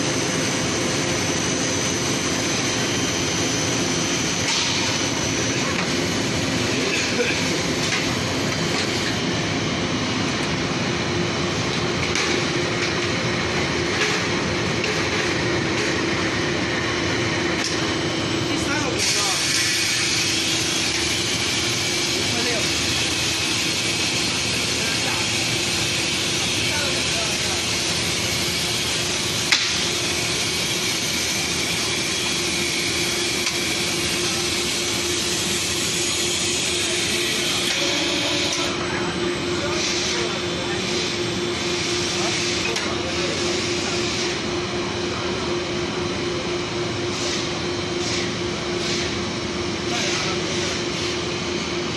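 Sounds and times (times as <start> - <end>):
machine din with low hum: 0.0 - 51.9
production line hissing: 15.4 - 51.9.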